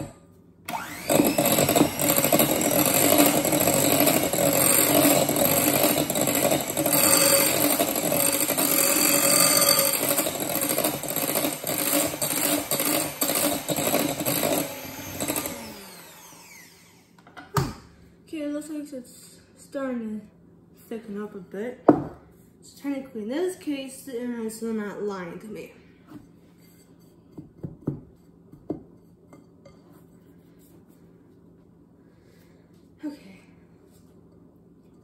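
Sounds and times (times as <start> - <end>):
electric hand mixer running: 0.7 - 17.2.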